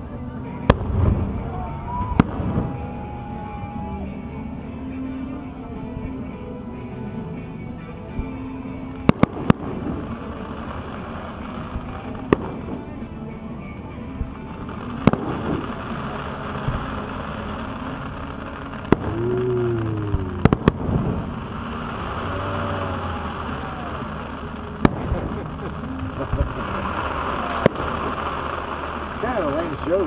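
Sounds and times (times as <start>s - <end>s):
music: 0.0s - 30.0s
distant fireworks bangs: 0.7s - 3.0s, 14.2s - 29.8s.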